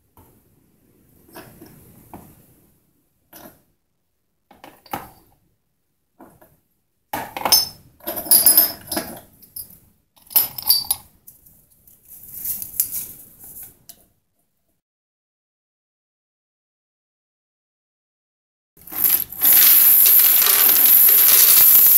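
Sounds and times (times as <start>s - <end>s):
soft rustle: 11.3s - 13.9s.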